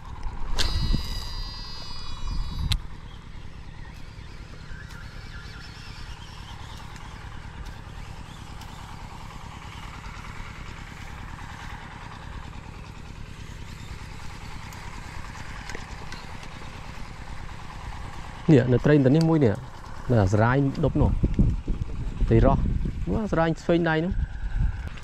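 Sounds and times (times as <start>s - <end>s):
small engine droning: 0.0s - 25.0s.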